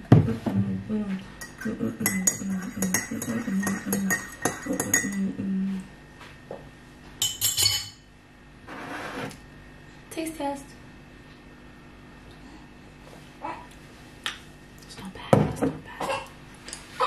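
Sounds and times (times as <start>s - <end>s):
teaspoon clinking in ceramic mug: 1.4s - 5.3s.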